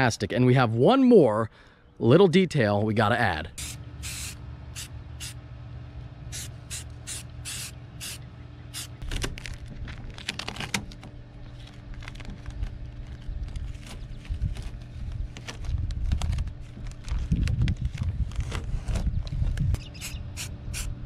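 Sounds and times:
spray can hissing: 0:03.6 - 0:05.4, 0:06.3 - 0:08.2, 0:20.0 - 0:20.9
tape and paper peeling: 0:08.8 - 0:19.0.

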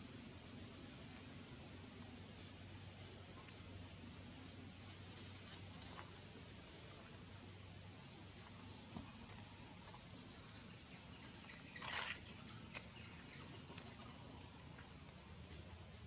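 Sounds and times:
bird chirping: 0:09.9 - 0:14.1.

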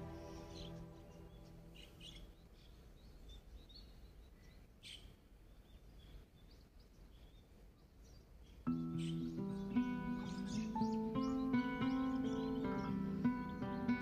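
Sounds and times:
low steady rumble: 0:00.0 - 0:02.4
small birds chirping: 0:00.0 - 0:14.0.

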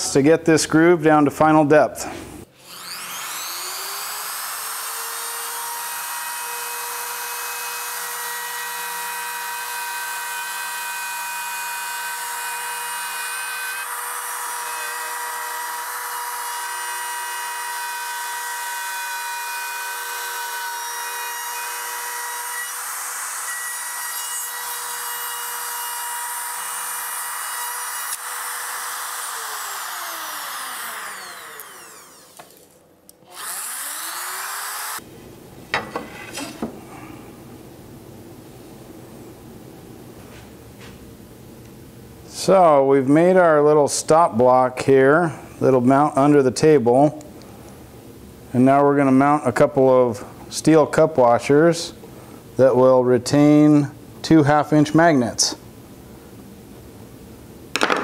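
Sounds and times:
router bit cutting wood hiss: 0:02.0 - 0:35.0
router motor whine: 0:02.6 - 0:35.0.

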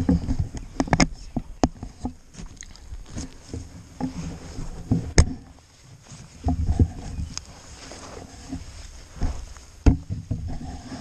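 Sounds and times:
clothing rustling: 0:05.6 - 0:09.8.

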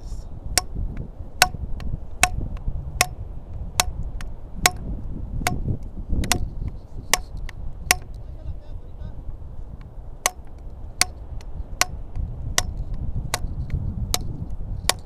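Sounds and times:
low wind rumble: 0:00.0 - 0:15.0
plastic pipe knocking: 0:07.9 - 0:08.2.

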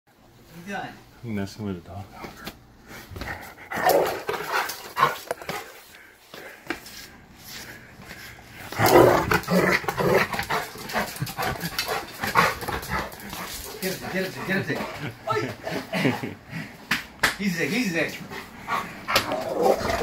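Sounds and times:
dog growling and barking: 0:03.7 - 0:05.3, 0:08.7 - 0:13.8, 0:18.7 - 0:20.0.

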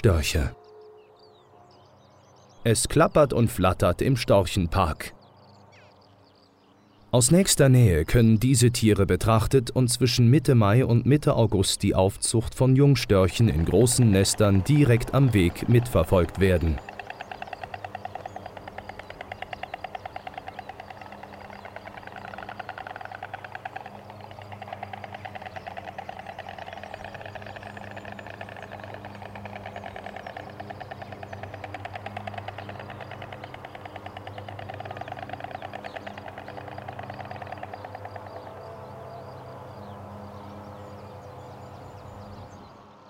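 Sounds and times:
low steady hum: 0:00.0 - 0:43.0
storks bill-clattering: 0:12.9 - 0:42.2.

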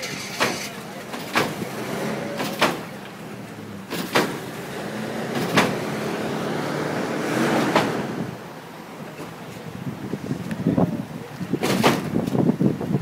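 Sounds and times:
car slamming down with bangs: 0:00.0 - 0:06.3, 0:06.9 - 0:08.4, 0:11.6 - 0:12.4
vehicle engine hum: 0:00.0 - 0:13.0.

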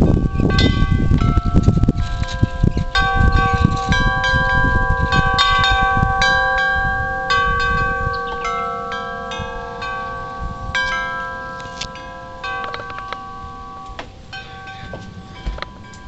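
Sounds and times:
wind chimes ringing: 0:00.0 - 0:16.0
wind rumble on microphone: 0:00.0 - 0:16.0.

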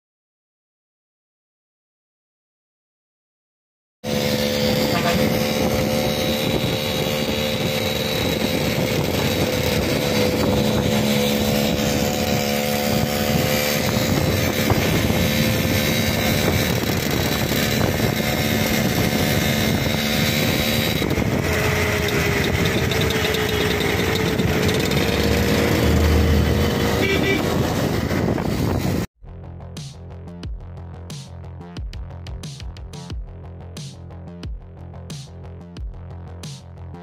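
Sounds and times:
moped engine running: 0:04.0 - 0:29.1
wind and road noise: 0:04.1 - 0:29.1.

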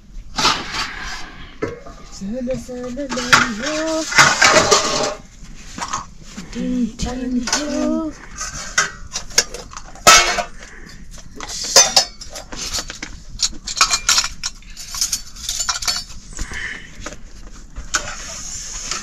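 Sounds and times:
metal utensils clinking on dishes: 0:03.1 - 0:05.2, 0:07.4 - 0:10.6, 0:11.4 - 0:16.3.

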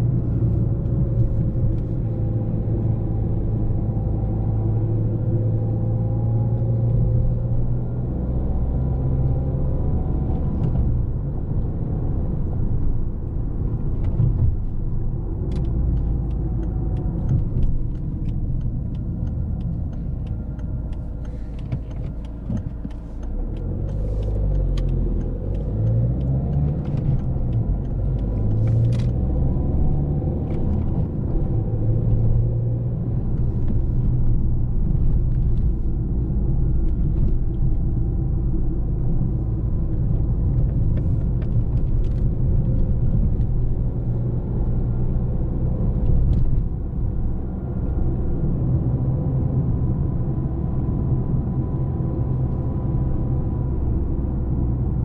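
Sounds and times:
car engine driving: 0:00.0 - 0:55.0
road rumble: 0:00.0 - 0:55.0
light ticks: 0:15.5 - 0:29.2.

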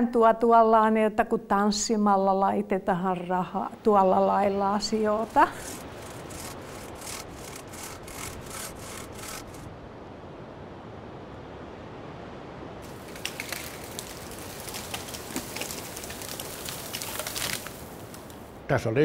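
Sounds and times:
bow saw cutting wood: 0:04.5 - 0:09.7
wood cracking and snapping: 0:05.2 - 0:09.6, 0:12.9 - 0:18.4.

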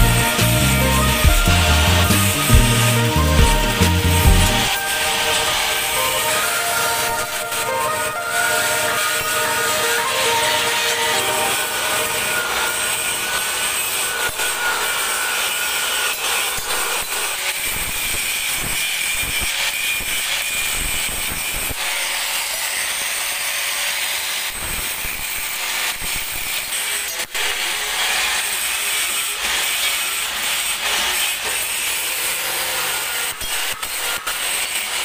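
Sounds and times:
thin high whine: 0:00.0 - 0:14.9
power tool working on metal: 0:00.0 - 0:35.0.

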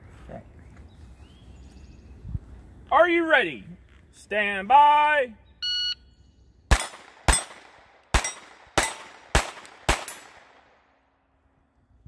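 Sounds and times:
pistol shots: 0:06.7 - 0:11.0.

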